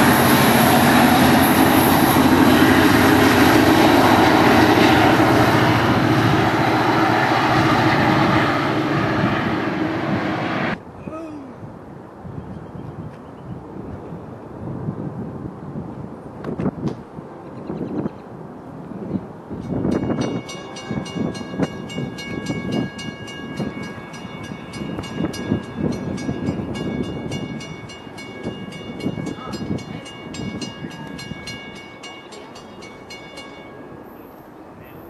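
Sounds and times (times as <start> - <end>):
wind buffeting microphone: 0.0 - 32.0
railroad crossing bell ringing: 19.6 - 35.0.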